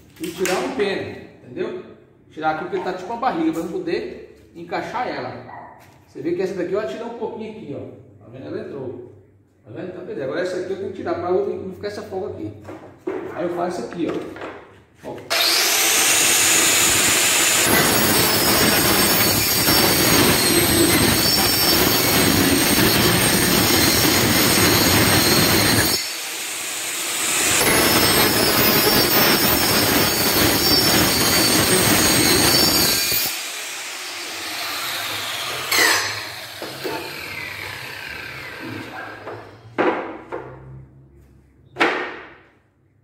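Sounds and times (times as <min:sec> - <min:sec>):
power tool cutting wood: 0:15.3 - 0:39.7.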